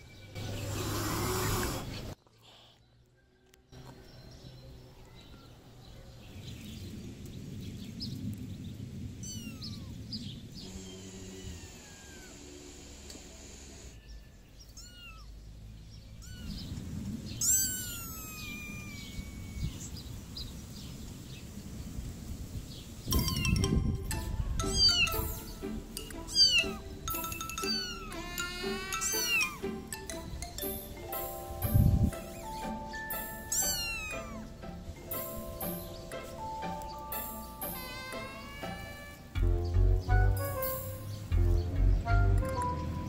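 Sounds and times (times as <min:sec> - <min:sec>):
cat meowing: 0:09.2 - 0:10.0, 0:11.2 - 0:12.6, 0:14.7 - 0:15.4, 0:16.2 - 0:16.7, 0:17.4 - 0:20.0, 0:26.3 - 0:26.9, 0:27.6 - 0:29.6, 0:33.4 - 0:34.6, 0:37.7 - 0:39.3.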